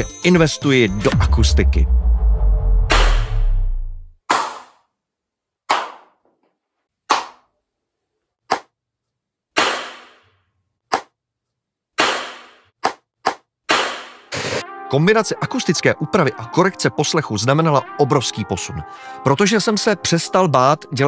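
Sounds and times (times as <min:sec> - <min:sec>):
hand claps with room reverb: 0:05.7 - 0:06.2, 0:07.1 - 0:07.5.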